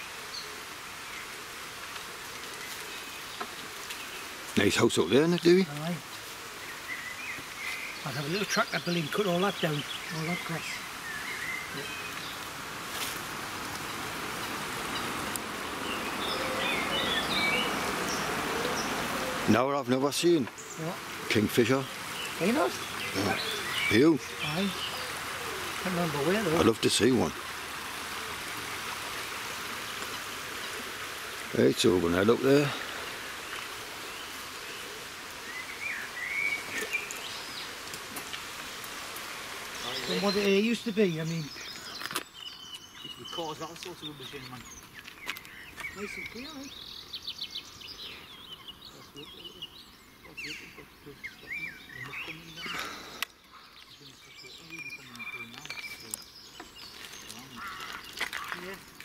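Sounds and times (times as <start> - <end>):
stream flowing over stones: 0.0 - 48.4, 50.3 - 59.0
bird singing whistled notes: 6.7 - 12.4, 15.8 - 19.0, 35.4 - 37.7, 53.4 - 58.2.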